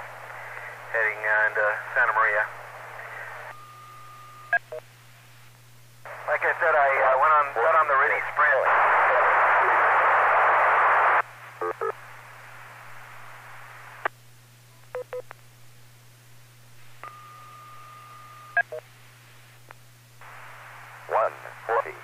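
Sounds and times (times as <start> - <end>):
radio static hiss: 0.0 - 3.5, 4.6 - 14.3, 18.6 - 22.0
steady low hum: 0.0 - 22.0
held tone: 3.5 - 4.6, 17.0 - 18.8.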